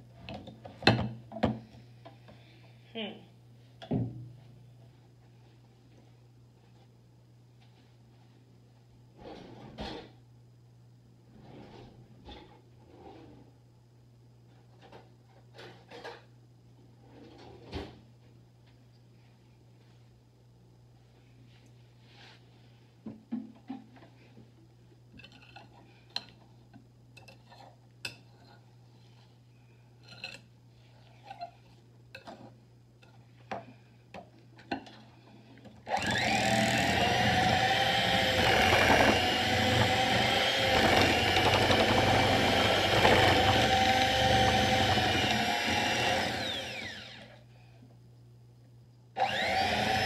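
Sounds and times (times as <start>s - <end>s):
electric hand mixer whining: 35.9s - 47.3s, 49.2s - 50.0s.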